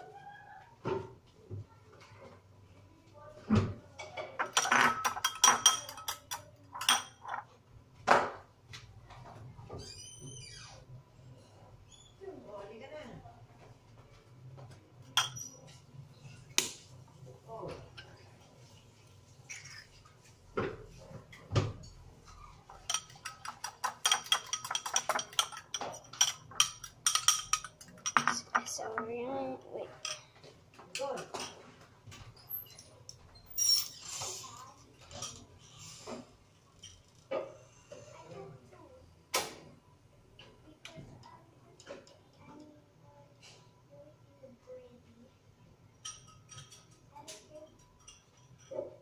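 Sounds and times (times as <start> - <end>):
fork clinking against ceramic bowl: 4.6 - 7.4, 22.8 - 28.7, 47.8 - 48.8.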